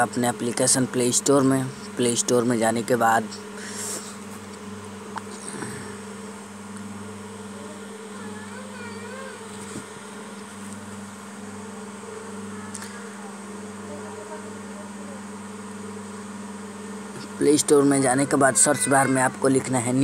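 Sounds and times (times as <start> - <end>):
low electrical buzzing hum: 0.0 - 20.0.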